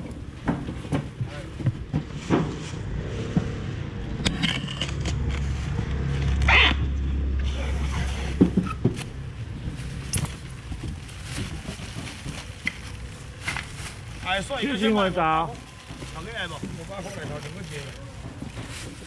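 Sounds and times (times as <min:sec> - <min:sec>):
motor vehicle passing: 0:02.2 - 0:19.0
plastic bags rustling: 0:07.5 - 0:19.0
styrofoam box handled: 0:09.8 - 0:19.0.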